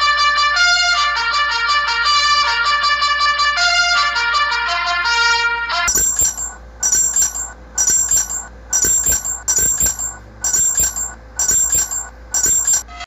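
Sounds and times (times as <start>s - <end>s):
jingling alert alarm: 5.9s - 13.0s.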